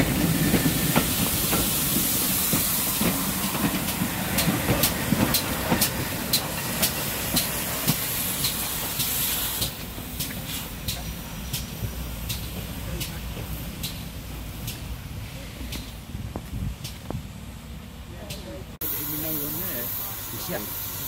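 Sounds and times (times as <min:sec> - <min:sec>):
wheels clicking on track: 0:00.0 - 0:14.9
steam locomotive hissing steam: 0:00.0 - 0:17.3, 0:18.8 - 0:21.0.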